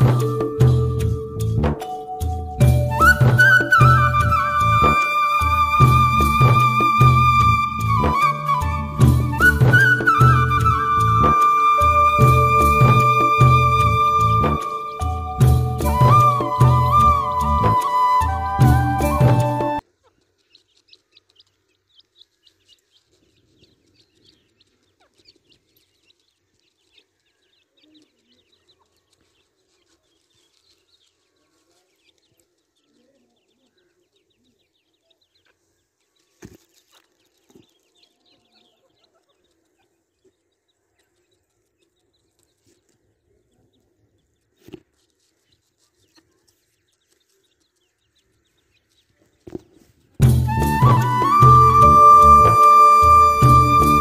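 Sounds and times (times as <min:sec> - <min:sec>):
chicks peeping: 0:19.8 - 0:50.2.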